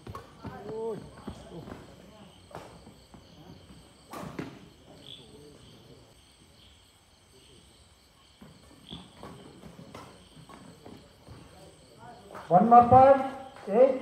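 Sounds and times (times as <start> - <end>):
rackets hitting a shuttlecock: 4.1 - 4.7.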